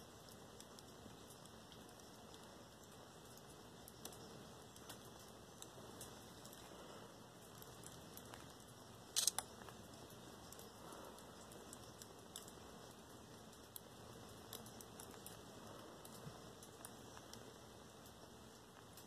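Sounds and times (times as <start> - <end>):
crackle of clicks: 0.0 - 6.8, 7.4 - 19.0
faint steady hiss: 0.0 - 19.0
small ticks: 0.0 - 19.0.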